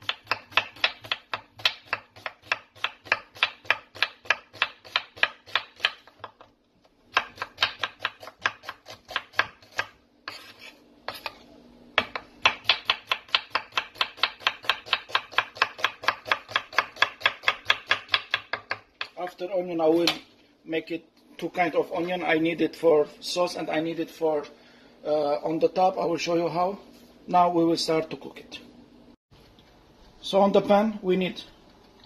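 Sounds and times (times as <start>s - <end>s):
knife slicing onion on board: 0.0s - 6.4s, 7.1s - 19.2s.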